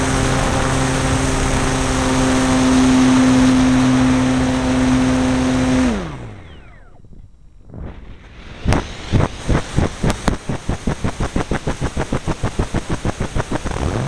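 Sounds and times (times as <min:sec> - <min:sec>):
rc plane electric motor: 0:00.0 - 0:07.0
wind rushing over microphone: 0:00.0 - 0:13.8.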